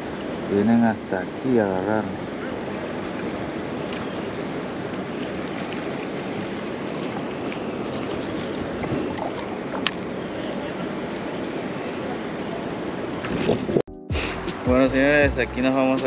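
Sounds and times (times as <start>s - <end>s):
flowing river water: 0.0s - 13.8s.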